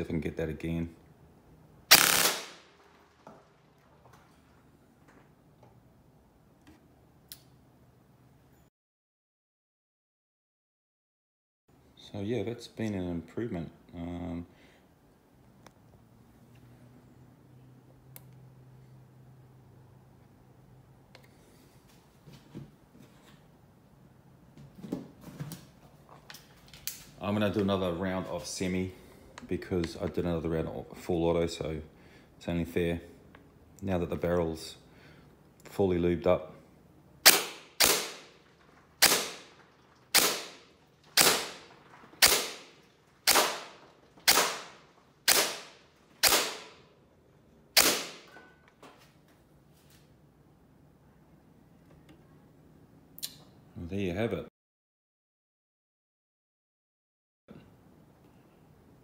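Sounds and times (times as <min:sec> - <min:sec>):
gel blaster shots: 0:01.9 - 0:02.6.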